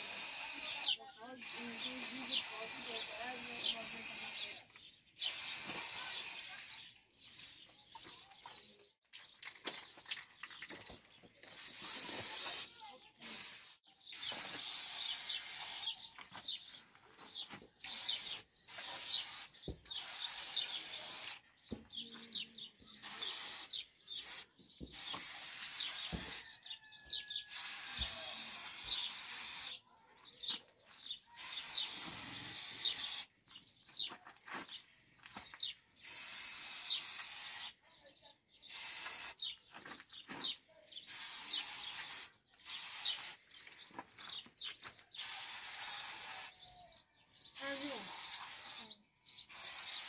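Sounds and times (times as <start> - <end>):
spray paint can hissing: 0.0 - 6.9, 11.5 - 16.1, 17.8 - 21.4, 23.0 - 26.5, 27.5 - 29.8, 31.4 - 33.3, 36.0 - 37.8, 38.6 - 39.5, 41.0 - 43.5, 45.1 - 46.7, 47.6 - 50.0
birds chirping faintly: 0.6 - 27.5, 36.8 - 45.9, 46.5 - 50.0.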